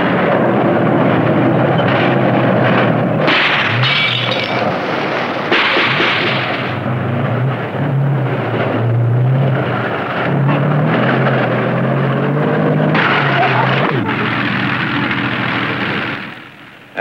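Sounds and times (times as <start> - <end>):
tank engine running hard: 0.0 - 17.0
tracks grinding clatter: 0.0 - 17.0
iron gate being rammed: 1.0 - 8.8.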